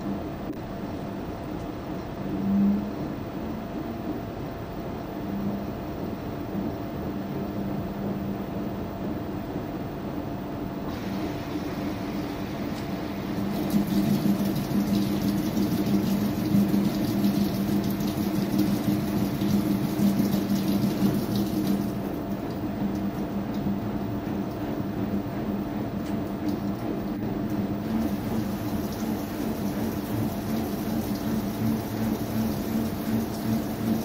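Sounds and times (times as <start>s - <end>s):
washing machine motor hum: 0.0s - 34.0s
water and clothes swishing in drum: 10.9s - 34.0s.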